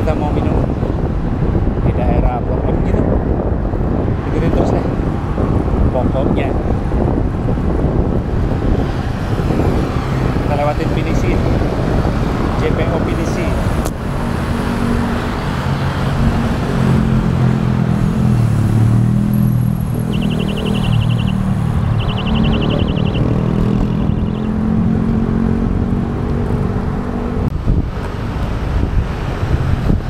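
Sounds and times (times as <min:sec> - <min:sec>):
car and motorcycle engines: 0:00.0 - 0:30.0
wind on microphone: 0:00.0 - 0:30.0
rapid high-pitched ticking: 0:20.0 - 0:23.3.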